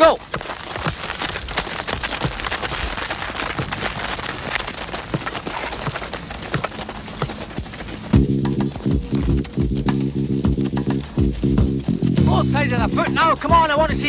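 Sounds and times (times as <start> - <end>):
footsteps on gritty dirt: 0.0 - 14.0
light ball taps: 5.2 - 8.2.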